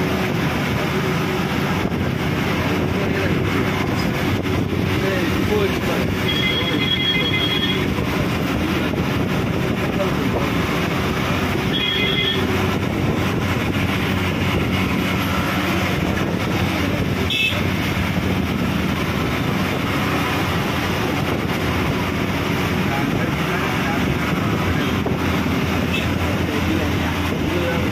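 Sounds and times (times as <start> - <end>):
vehicle engine and road noise: 0.0 - 27.9
horn honking: 6.2 - 8.0, 11.6 - 12.6, 17.2 - 17.7.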